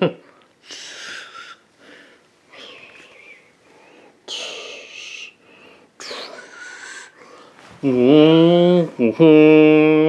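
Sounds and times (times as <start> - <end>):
hissy breathing close to microphone: 0.6 - 7.9.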